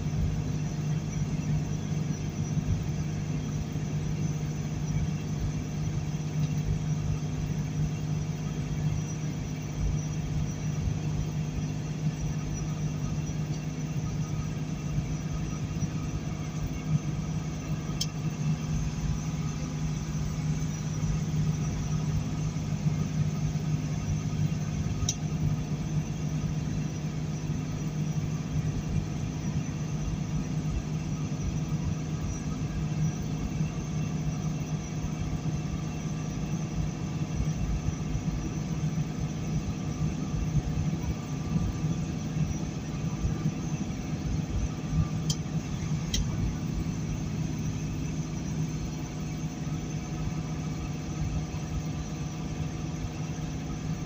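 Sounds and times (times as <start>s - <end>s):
truck engine drone: 0.0s - 54.0s
road rumble: 37.5s - 54.0s.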